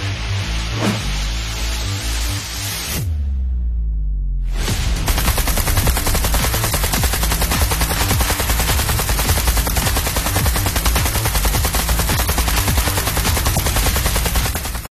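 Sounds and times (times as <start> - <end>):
gel blaster firing: 5.1 - 14.9.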